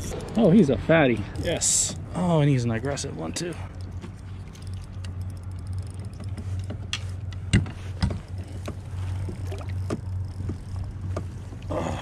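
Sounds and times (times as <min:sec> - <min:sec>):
steady low hum: 0:00.0 - 0:12.0
sharp clicks and knocks: 0:03.8 - 0:11.7.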